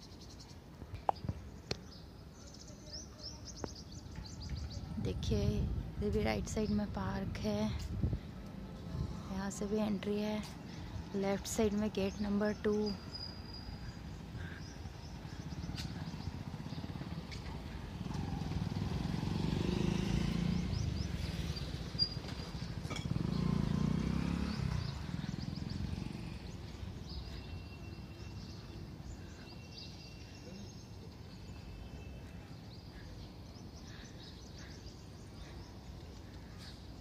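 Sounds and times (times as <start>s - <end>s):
small birds chirping: 0.0s - 8.6s, 9.3s - 37.0s
passing vehicle engine: 13.8s - 27.6s.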